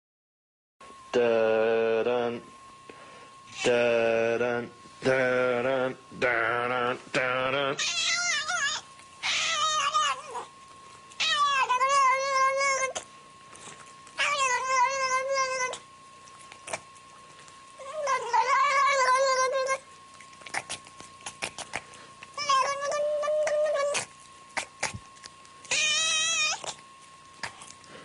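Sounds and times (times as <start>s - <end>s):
cat yowling: 7.8s - 10.5s, 11.2s - 13.0s, 14.2s - 15.9s, 17.8s - 19.8s, 22.4s - 24.7s, 25.6s - 26.8s.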